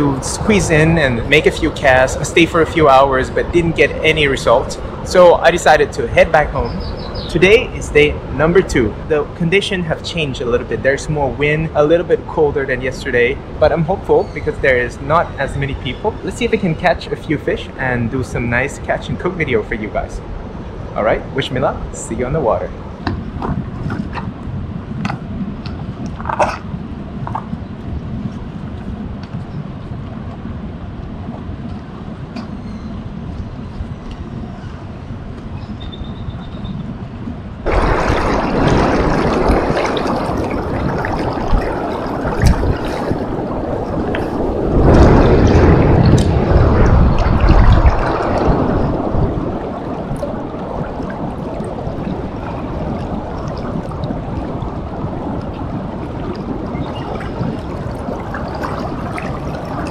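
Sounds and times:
wind rumble on microphone: 0.0s - 59.9s
river current rushing: 37.6s - 59.9s.

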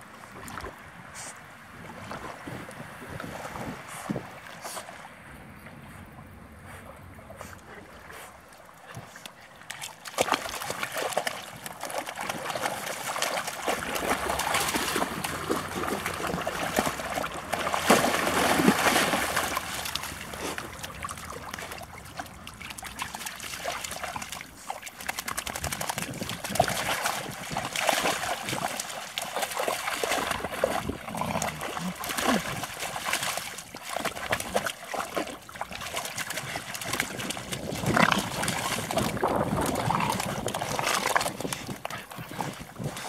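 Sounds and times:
dogs splashing through water: 0.1s - 43.0s.

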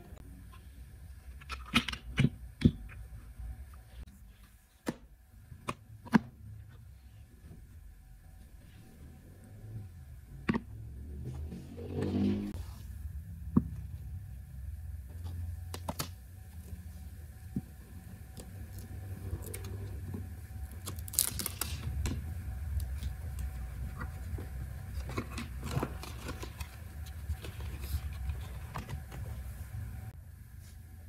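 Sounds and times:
low hum: 5.3s - 31.0s
sketchbook pages rustling: 15.2s - 29.9s.

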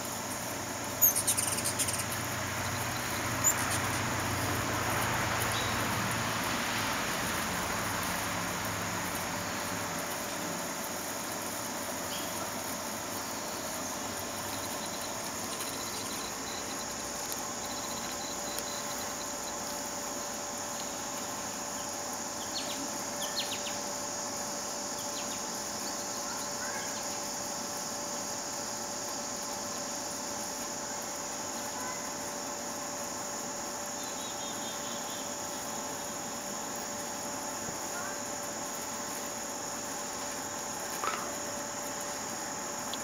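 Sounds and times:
high-pitched insect chorus: 0.0s - 43.0s.

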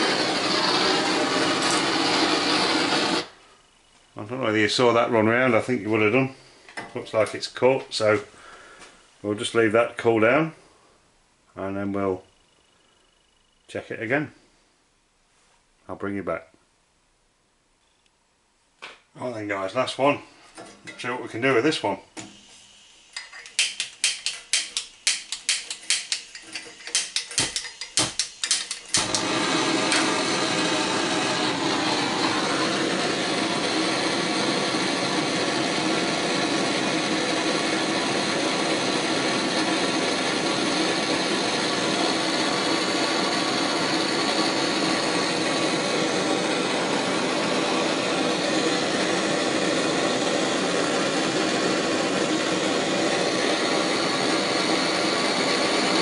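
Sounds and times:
gas torch hissing: 0.0s - 3.5s, 21.4s - 56.0s
igniter clicks: 23.1s - 30.4s.

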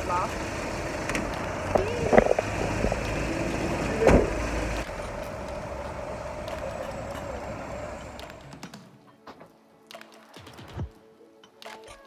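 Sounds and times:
van engine running: 0.0s - 8.6s
street hum: 0.0s - 8.8s
sliding door slamming: 0.3s - 8.8s.

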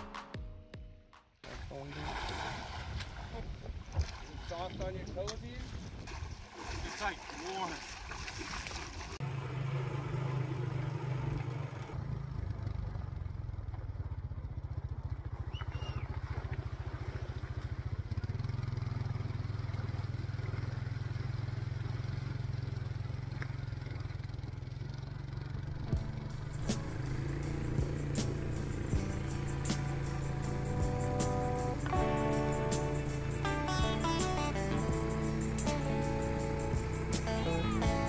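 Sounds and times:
quad bike engine running: 9.2s - 38.0s.

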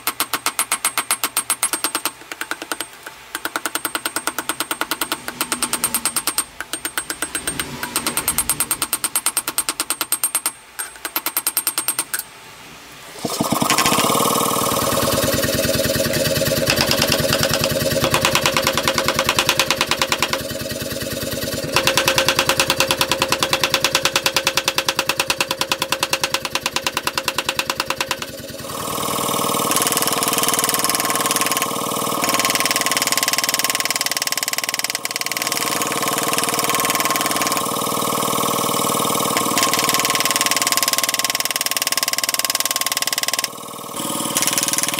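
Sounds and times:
machine pounding rhythmically: 13.2s - 33.9s.

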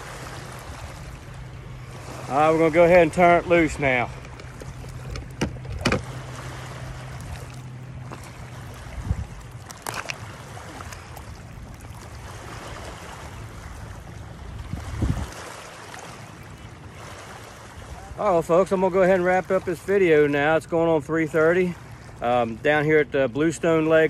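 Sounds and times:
water lapping at rocky shore: 0.0s - 24.0s
small splash: 3.8s - 14.0s, 14.6s - 18.0s
knocks and rustles: 4.1s - 6.1s
wind on microphone: 8.8s - 9.5s, 14.4s - 15.6s.

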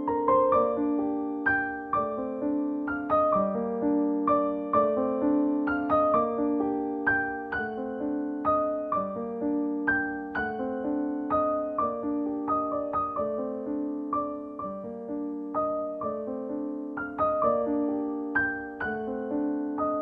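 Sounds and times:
gentle solo piano: 0.0s - 20.0s.

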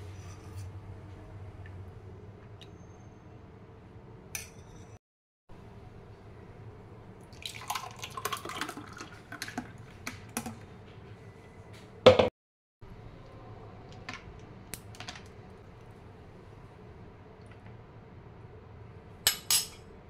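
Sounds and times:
smoothie pouring into glass: 7.3s - 9.8s.

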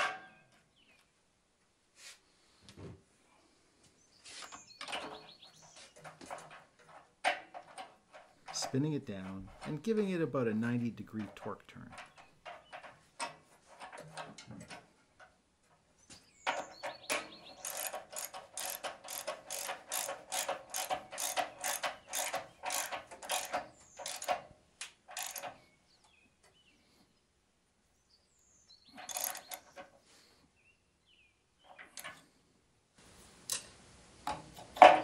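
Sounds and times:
ratchet wrench clicking: 17.6s - 24.4s, 25.1s - 25.5s, 29.0s - 29.6s.

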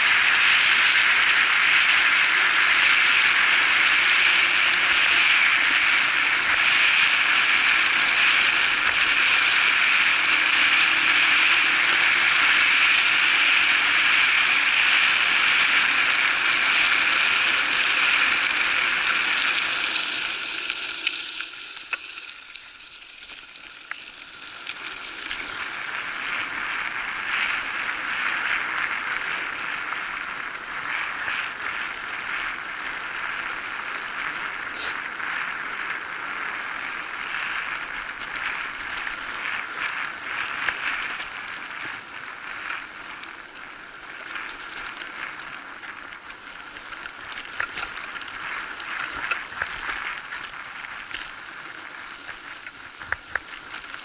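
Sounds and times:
bike tyre noise on dirt: 0.0s - 54.0s
bike rattles and knocks: 37.2s - 43.1s, 44.1s - 54.0s.

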